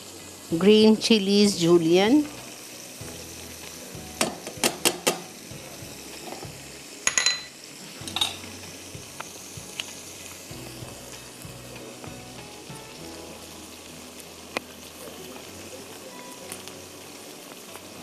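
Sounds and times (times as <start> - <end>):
garlic sizzling in oil: 0.0 - 18.0
kitchenware clinking against pan: 7.0 - 8.4.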